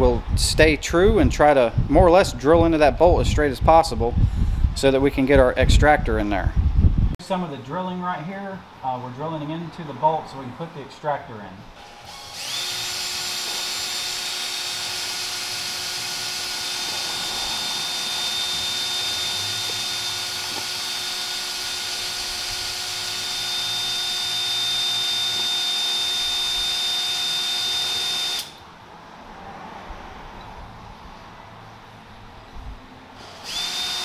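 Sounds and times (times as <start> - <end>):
cordless drill whining: 11.8 - 28.6, 33.2 - 34.0.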